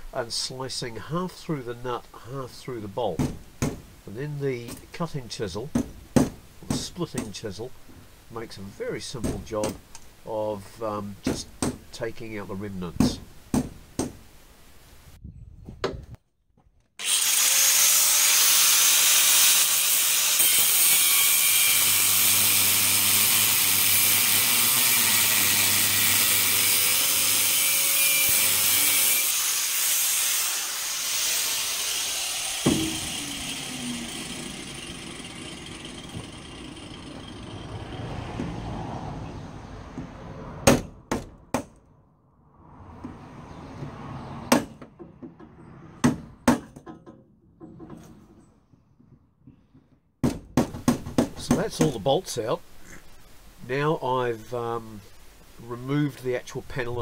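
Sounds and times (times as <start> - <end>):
angle grinder cutting steel: 17.0 - 38.4.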